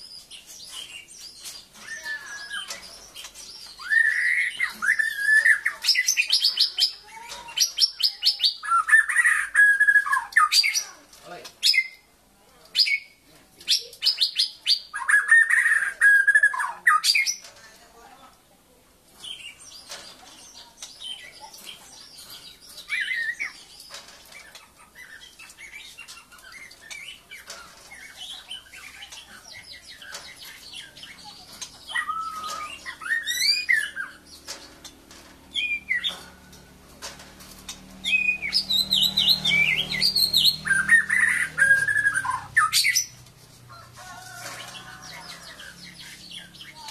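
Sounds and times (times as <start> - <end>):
bird singing whistled phrases: 3.8 - 6.2.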